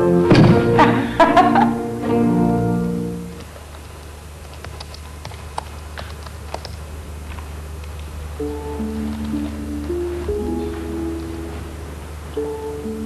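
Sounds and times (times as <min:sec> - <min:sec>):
held music chord: 0:00.0 - 0:03.4, 0:08.3 - 0:13.0
low steady hum: 0:00.0 - 0:13.0
typing on laptop keyboard: 0:04.4 - 0:08.1.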